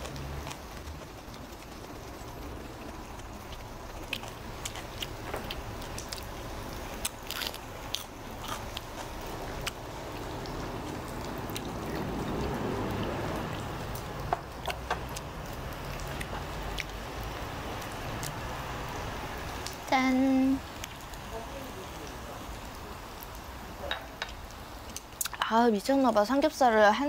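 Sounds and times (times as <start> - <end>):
crunchy chewing: 0.0 - 18.6.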